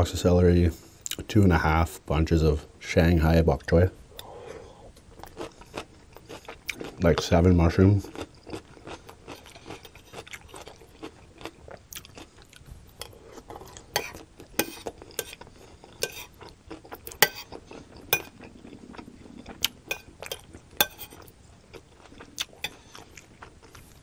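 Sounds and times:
chewing crunchy vegetables: 5.1s - 24.0s
metal spoon scraping ceramic plate: 17.2s - 17.5s, 20.8s - 21.2s.

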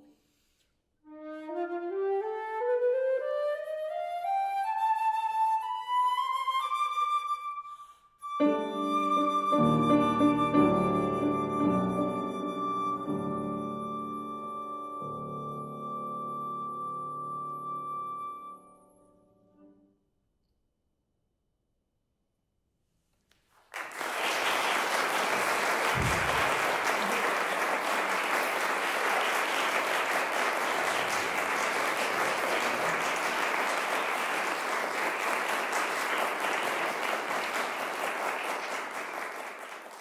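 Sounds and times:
audience applause: 23.6s - 40.0s.

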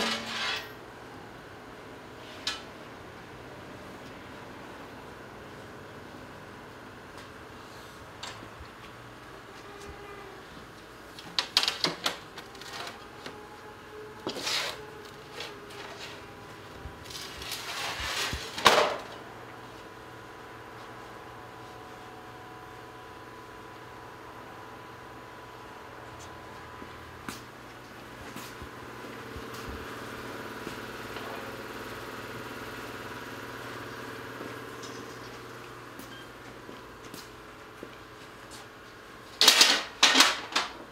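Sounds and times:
sheet metal scraping rub: 0.0s - 0.8s
machine humming: 19.0s - 37.9s.

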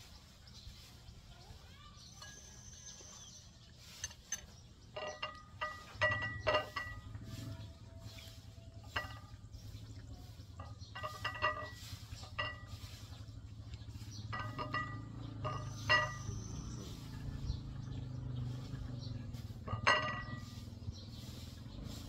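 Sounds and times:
light ringing clinks: 2.0s - 17.1s, 19.3s - 20.9s.

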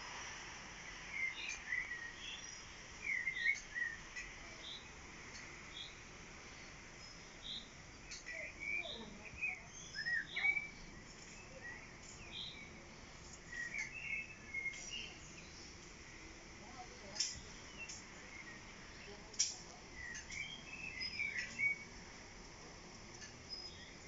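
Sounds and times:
faint outdoor hiss: 0.0s - 24.0s
songbirds chirping: 0.7s - 24.0s.

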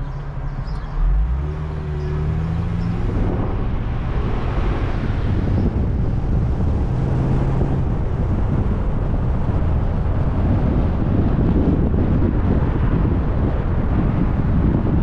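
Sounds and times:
car engine and road rumble: 0.0s - 15.0s
wind buffeting microphone: 0.0s - 15.0s.

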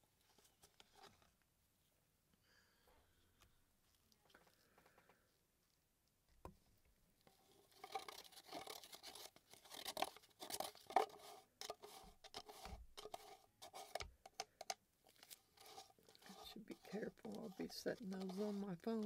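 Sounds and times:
stir stick scraping plastic cup: 7.4s - 19.0s.

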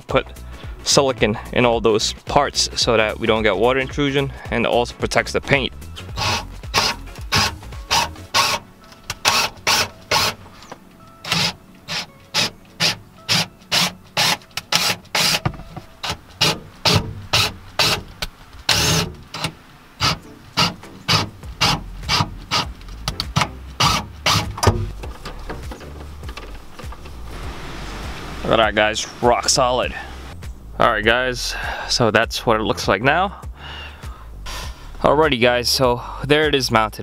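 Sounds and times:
rasping strokes: 5.9s - 28.5s.

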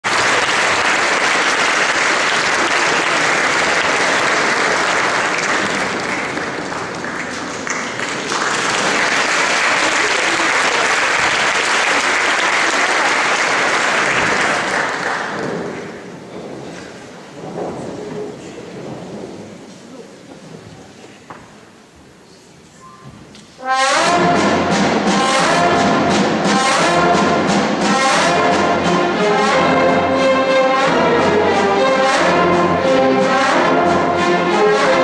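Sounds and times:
audience applauding: 0.0s - 20.7s.

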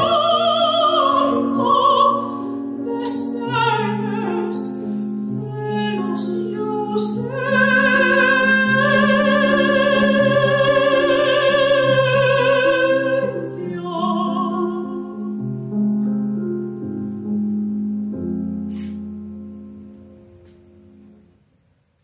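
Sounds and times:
operatic soprano singing: 0.0s - 15.4s
grand piano chords: 0.0s - 21.9s.

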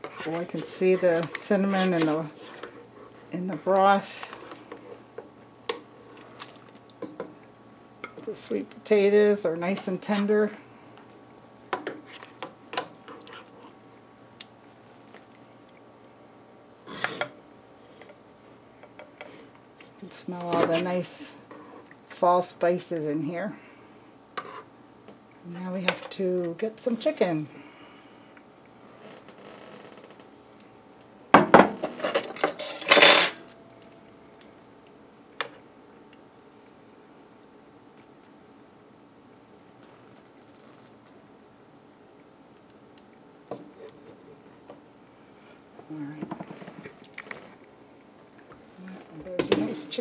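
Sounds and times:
clattering china and metal: 32.0s - 33.4s.

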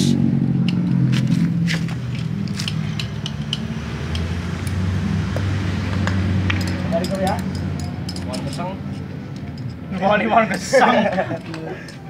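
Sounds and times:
metal on metal clicks: 2.5s - 4.8s.

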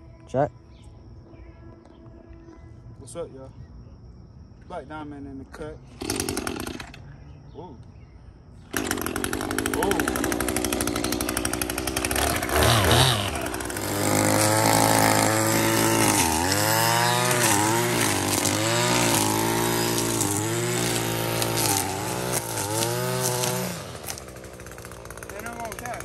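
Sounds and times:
chainsaw engine running: 5.9s - 7.1s, 8.7s - 26.0s.

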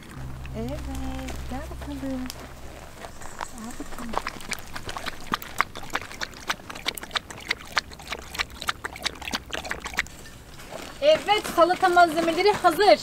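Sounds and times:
dog lapping water from bowl: 3.5s - 12.4s.

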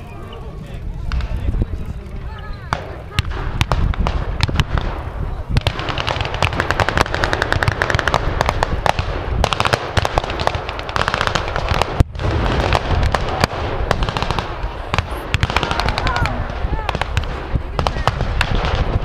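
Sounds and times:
distant gunfire crackle: 1.0s - 1.5s, 2.7s - 19.0s.

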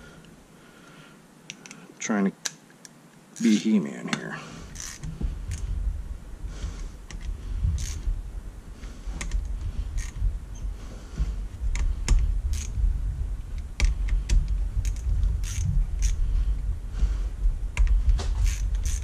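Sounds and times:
steady low rumble: 4.3s - 19.0s
hand ratchet clicking: 4.8s - 5.6s, 7.1s - 8.0s, 10.0s - 10.2s, 11.7s - 12.7s, 13.8s - 16.2s, 17.8s - 19.0s.

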